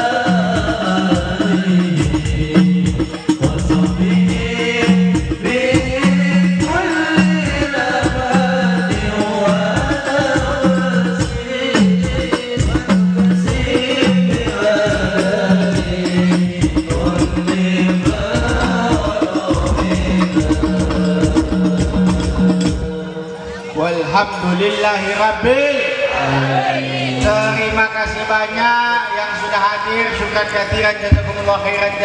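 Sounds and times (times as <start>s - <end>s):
low drum beat: 0.0s - 23.2s, 30.7s - 32.0s
devotional singing over loudspeakers: 0.0s - 32.0s.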